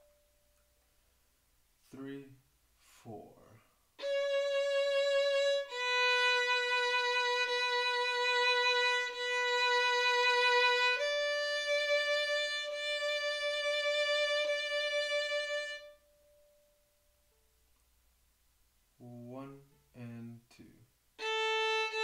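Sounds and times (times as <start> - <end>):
solo violin long bowed notes: 4.0 - 16.0, 21.2 - 22.0.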